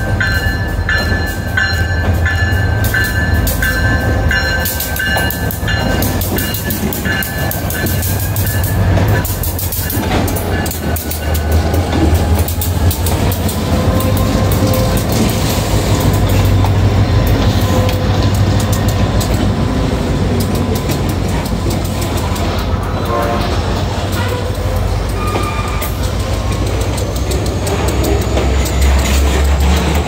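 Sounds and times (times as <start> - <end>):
locomotive engine rumble: 0.0 - 30.0
wheels clicking over rail joints: 0.0 - 30.0.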